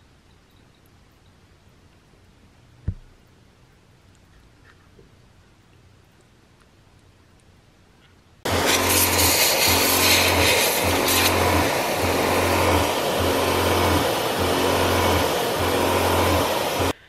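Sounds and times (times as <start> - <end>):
hiss of spraying water: 8.5 - 17.0
pump humming: 8.5 - 17.0.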